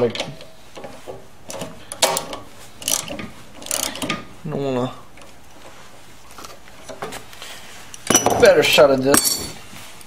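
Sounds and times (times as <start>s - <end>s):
ratchet wrench clicking: 2.8s - 4.2s.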